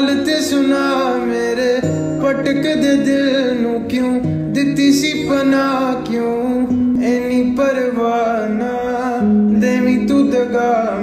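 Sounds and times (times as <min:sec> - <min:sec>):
song with guitar: 0:00.0 - 0:11.0.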